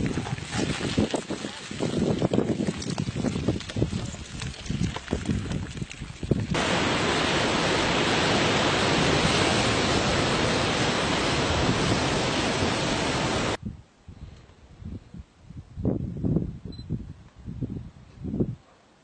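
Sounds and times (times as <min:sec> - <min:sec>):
wind: 0:00.0 - 0:19.0
surf rushing: 0:06.6 - 0:13.6.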